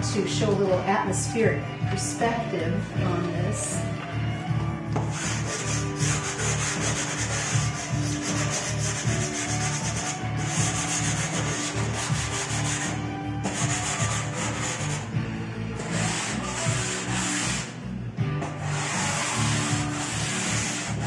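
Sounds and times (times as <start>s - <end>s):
pastel scratching on paper: 5.1s - 15.1s, 15.8s - 17.7s, 18.6s - 21.0s.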